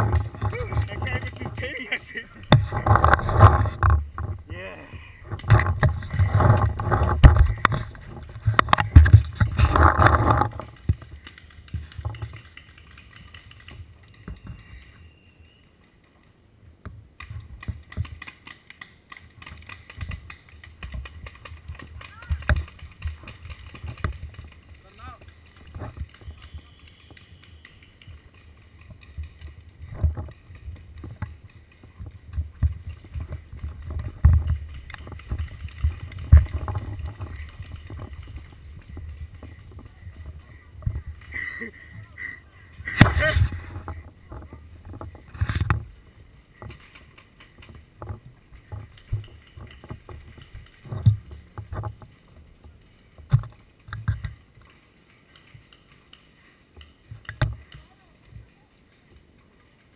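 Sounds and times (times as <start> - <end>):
gear knocking: 0.0 - 4.4, 17.2 - 58.5
low thumps and knocks: 5.2 - 11.1.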